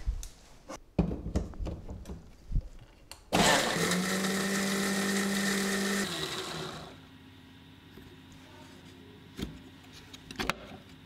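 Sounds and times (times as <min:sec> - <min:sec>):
electric blender motor grinding: 0:03.3 - 0:07.0.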